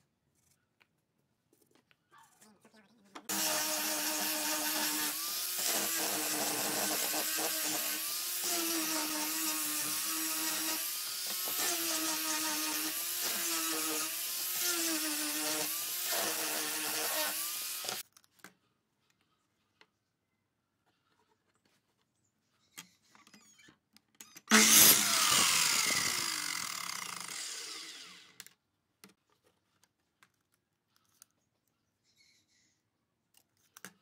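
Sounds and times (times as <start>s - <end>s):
power tool motor running: 3.3s - 18.0s, 24.5s - 28.4s.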